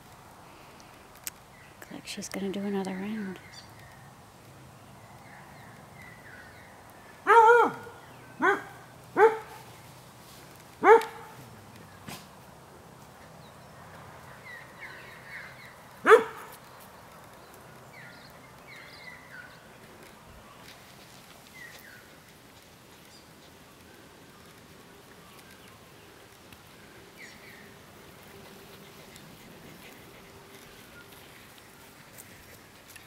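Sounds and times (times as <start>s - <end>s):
small birds chirping: 0.5s - 12.1s, 13.0s - 33.0s
dog barking: 7.2s - 9.6s, 10.8s - 11.4s, 16.0s - 16.5s.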